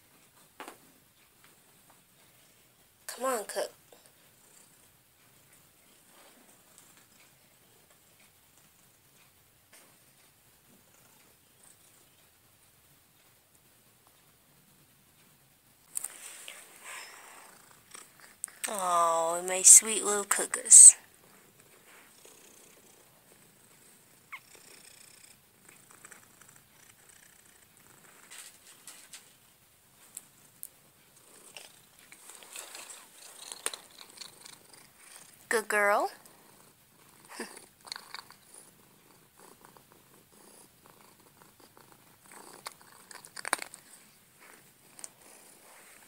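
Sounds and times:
cat purring: 0.1s - 46.0s.

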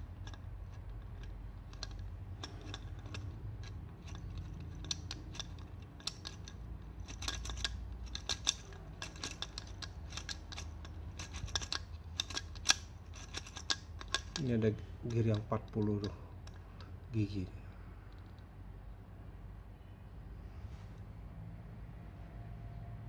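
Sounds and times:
plastic gears clicking and rattling: 0.0s - 17.0s.

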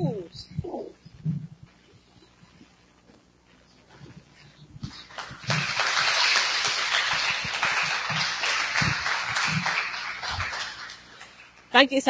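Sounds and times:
audience applauding: 4.9s - 11.7s.

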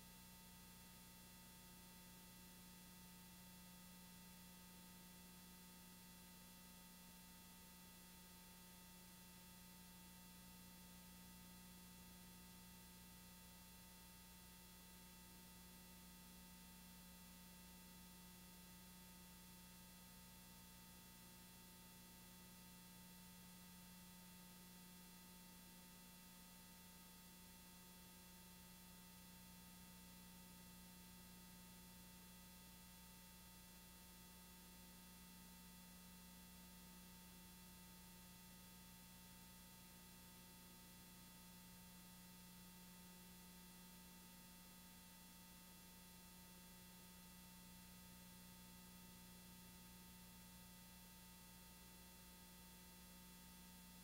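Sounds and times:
faint electrical hum: 0.0s - 54.0s.

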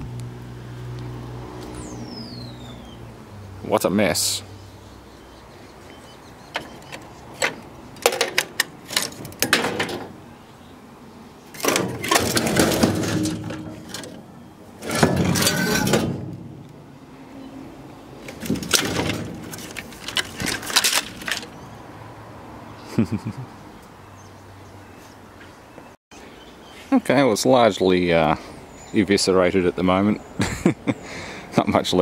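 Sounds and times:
metal panels clanking and rattling: 6.6s - 10.2s, 11.5s - 16.8s, 18.2s - 21.5s
metal scraping: 11.5s - 16.9s, 18.2s - 21.5s.

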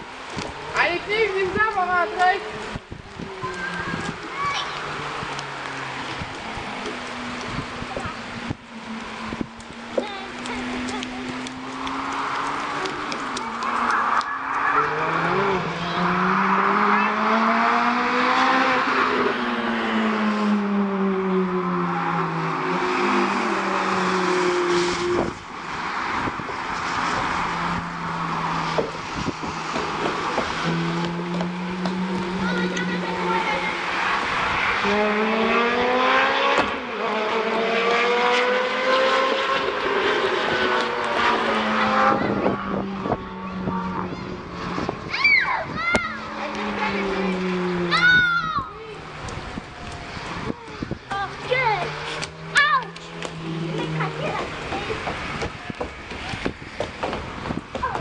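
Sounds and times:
race car engines accelerating: 0.0s - 58.0s.

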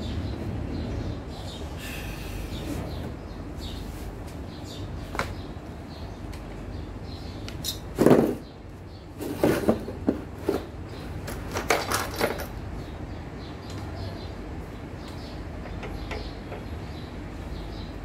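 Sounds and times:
metal tools clattering: 11.3s - 12.6s.

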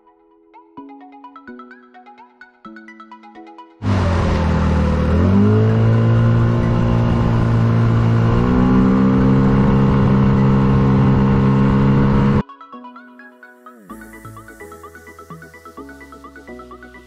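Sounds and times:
background music: 0.0s - 17.0s
outboard motor running: 3.8s - 12.4s.

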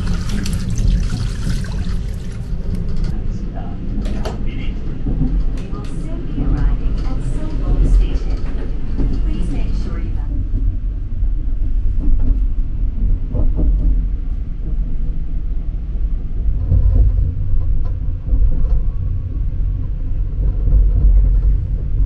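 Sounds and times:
train rumbling at speed: 0.0s - 22.0s.

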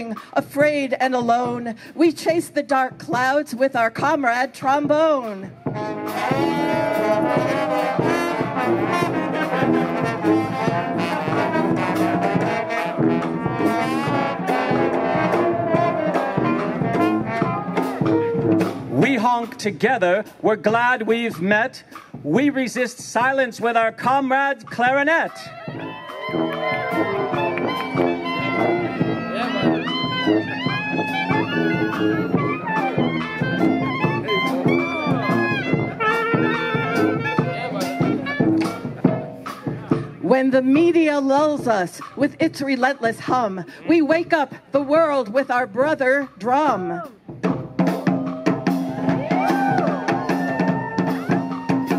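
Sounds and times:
bass drum beat: 0.0s - 51.9s
brass band playing: 0.0s - 51.9s
sousaphone bass: 4.7s - 21.6s, 24.7s - 47.2s
trombones: 5.5s - 19.3s, 25.5s - 40.9s.

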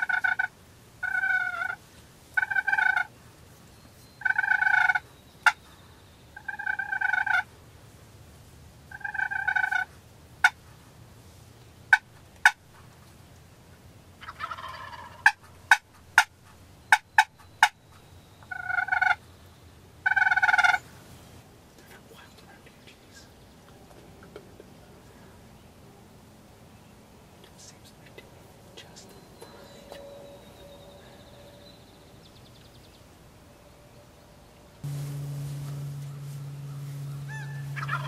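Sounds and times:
soft rough turkey call: 0.0s - 1.8s, 2.4s - 3.1s, 6.4s - 7.5s, 8.9s - 10.6s, 18.4s - 19.2s, 34.8s - 38.0s
turkeys gobbling: 0.0s - 1.8s, 2.4s - 3.1s, 4.2s - 5.6s, 6.4s - 7.5s, 8.9s - 10.6s, 11.9s - 12.6s, 14.2s - 16.3s, 16.9s - 17.8s, 18.4s - 19.2s, 20.0s - 20.8s, 36.0s - 38.0s.

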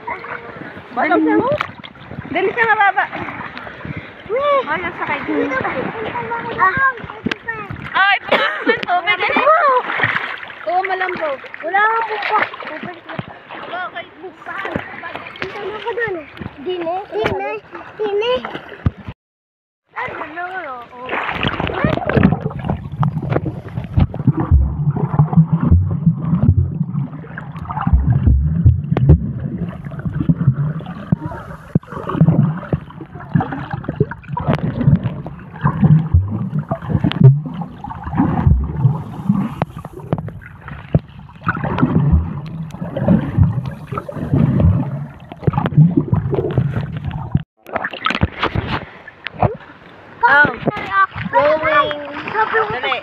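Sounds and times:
water sloshing and gurgling: 0.0s - 19.2s, 19.8s - 53.0s
low underwater thumps: 1.0s - 8.2s, 21.4s - 48.8s.

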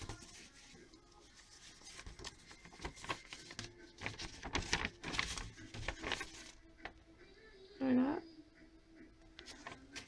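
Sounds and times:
paper rustling and crinkling: 0.0s - 7.0s, 9.4s - 10.0s.

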